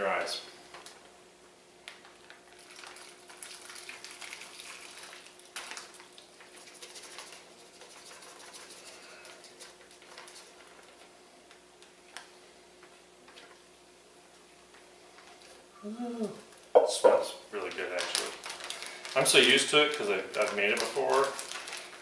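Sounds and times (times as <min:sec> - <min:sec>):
liquid pouring and splashing: 0:02.5 - 0:10.4.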